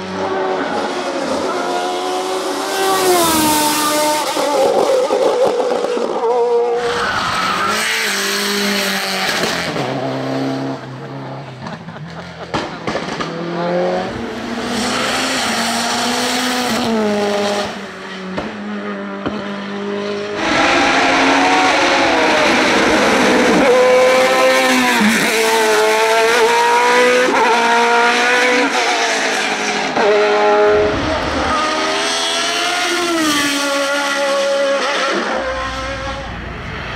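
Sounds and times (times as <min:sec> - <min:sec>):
racing car engines revving: 0:00.0 - 0:36.9.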